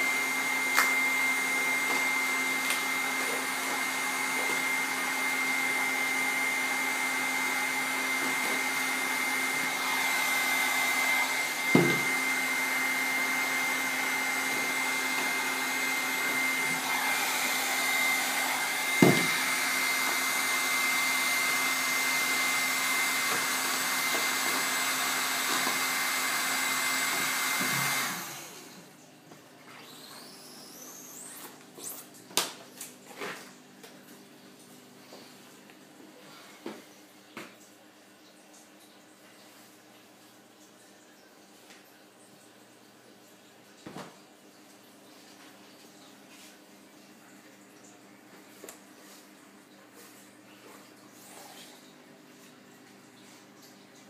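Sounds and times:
heat gun blowing with high whine: 0:00.0 - 0:28.8, 0:29.8 - 0:31.6.

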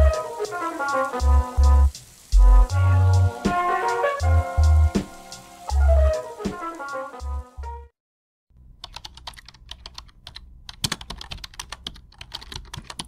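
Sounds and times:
background music: 0:00.0 - 0:07.9
keyboard typing clicks: 0:08.8 - 0:13.0.

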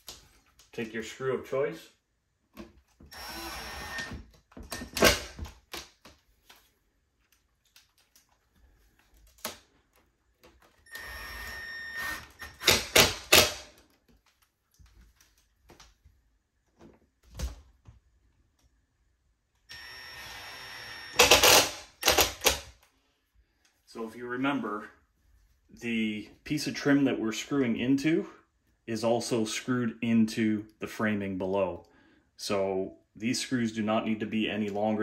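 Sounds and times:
drill motor running: 0:03.1 - 0:04.2, 0:10.9 - 0:12.7, 0:19.7 - 0:22.2.

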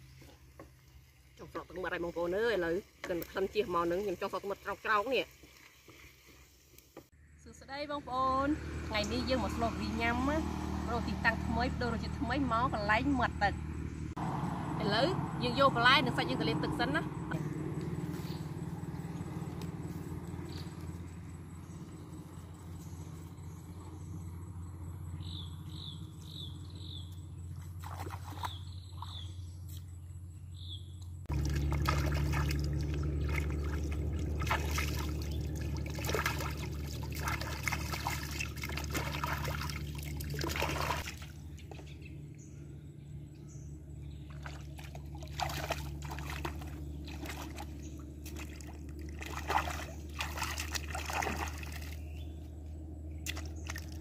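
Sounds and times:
water splashing and trickling: 0:00.0 - 0:07.2, 0:08.6 - 0:13.2, 0:25.4 - 0:29.9, 0:31.0 - 0:42.4, 0:44.0 - 0:54.0.

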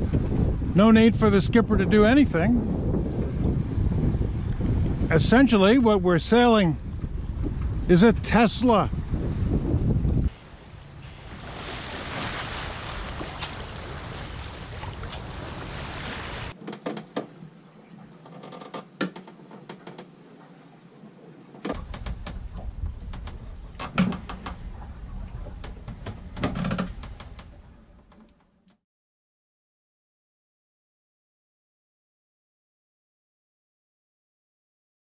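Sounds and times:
wind and water rushing: 0:00.0 - 0:18.3, 0:18.9 - 0:28.0
steering lines clicking and creaking: 0:21.6 - 0:28.8.

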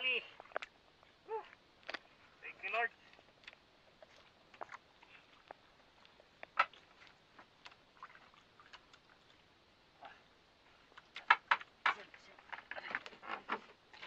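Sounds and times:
fish handling clicks and knocks: 0:10.9 - 0:14.0.

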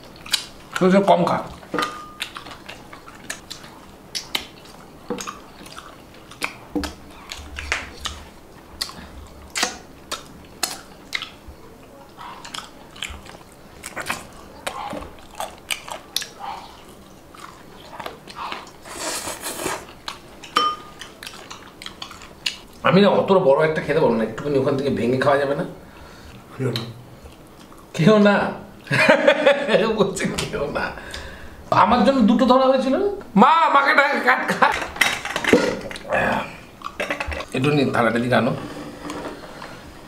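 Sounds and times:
chewing and mouth smacks: 0:00.0 - 0:00.9, 0:01.6 - 0:18.8, 0:19.8 - 0:22.8, 0:26.7 - 0:27.9
hissing scrape: 0:18.8 - 0:19.9.

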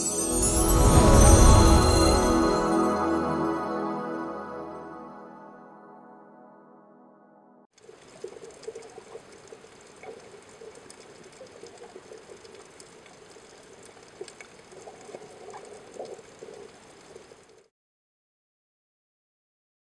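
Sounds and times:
small crackling pops: 0:07.8 - 0:17.7.

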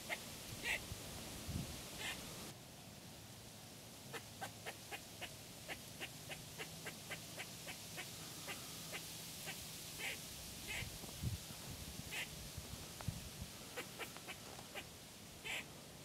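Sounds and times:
squirrel barking: 0:00.0 - 0:00.8, 0:02.0 - 0:02.2, 0:04.1 - 0:10.9, 0:12.1 - 0:12.3, 0:13.8 - 0:15.7.

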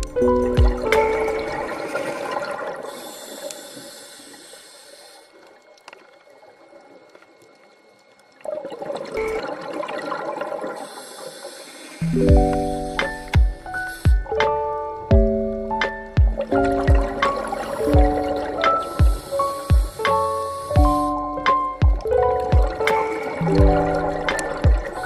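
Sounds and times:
rushing bubbling water: 0:00.0 - 0:03.5, 0:05.3 - 0:14.4, 0:15.2 - 0:25.0
high hiss: 0:02.9 - 0:05.4, 0:10.8 - 0:14.7, 0:18.6 - 0:21.5.

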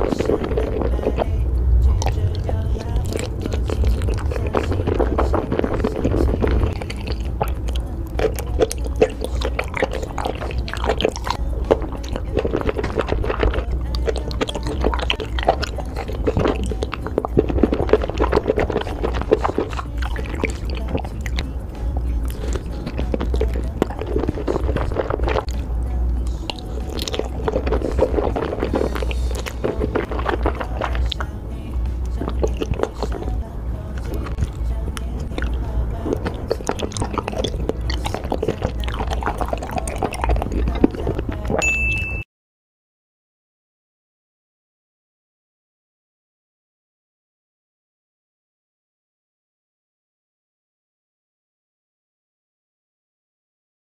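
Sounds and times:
chewing with wet mouth clicks: 0:00.0 - 0:41.6
fish cake squelching in sauce: 0:02.0 - 0:21.4, 0:22.0 - 0:25.6, 0:26.3 - 0:31.3, 0:32.0 - 0:33.3, 0:35.2 - 0:41.5
short bright ding: 0:41.6 - 0:42.2.

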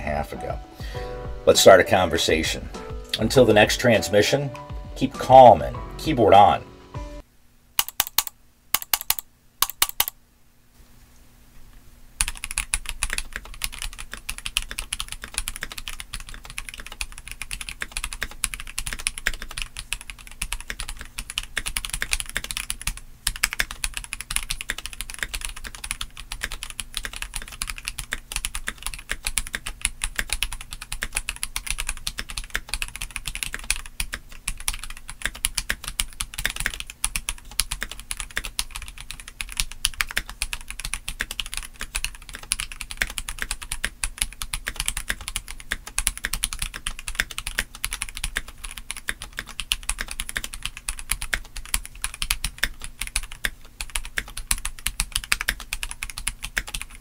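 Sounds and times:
mechanical keyboard typing: 0:07.8 - 0:10.2, 0:12.2 - 0:57.0.

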